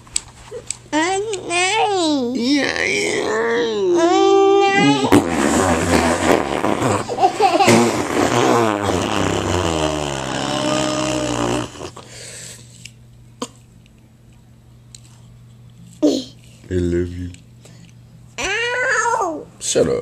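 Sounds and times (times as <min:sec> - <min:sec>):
man blowing raspberries: 0:04.8 - 0:12.5.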